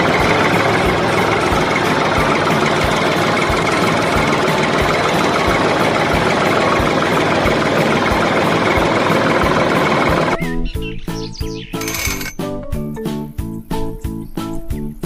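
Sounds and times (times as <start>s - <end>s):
tractor engine running: 0.0s - 10.4s.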